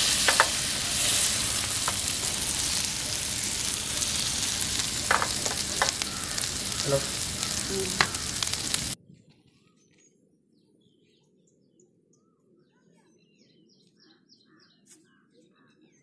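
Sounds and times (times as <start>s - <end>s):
fish sizzling in hot oil: 0.0s - 9.0s
small birds chirping: 0.0s - 9.0s.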